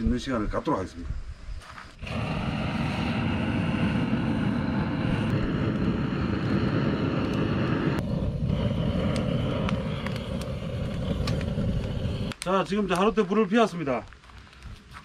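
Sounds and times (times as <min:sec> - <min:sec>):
gas torch flame rushing: 0:02.0 - 0:12.4.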